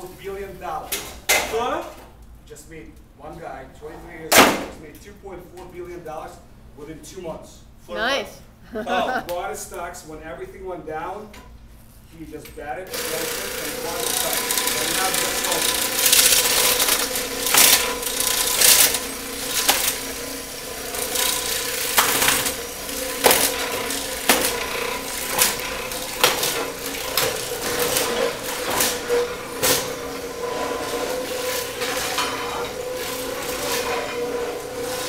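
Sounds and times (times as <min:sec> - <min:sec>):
floor scraper humming: 0:12.9 - 0:35.0
flooring cracking and knocking: 0:21.0 - 0:34.2.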